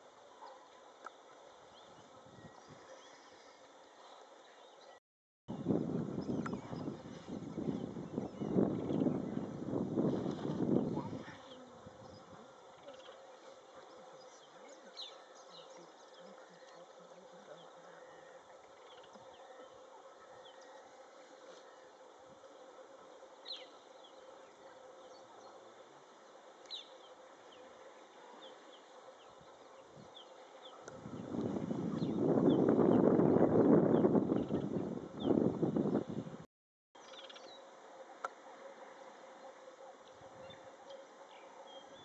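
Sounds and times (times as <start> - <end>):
wind buffeting microphone: 5.5 - 12.4, 30.8 - 36.4
faint insect buzz: 6.4 - 32.4.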